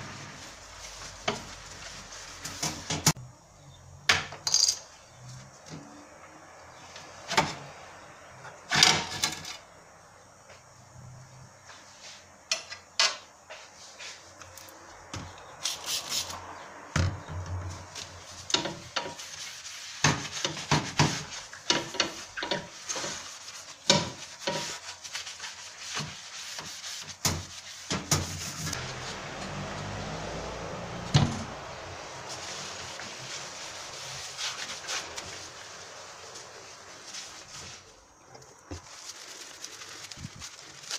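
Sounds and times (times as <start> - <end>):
sponge scrubbing glass: 18.2 - 38.1.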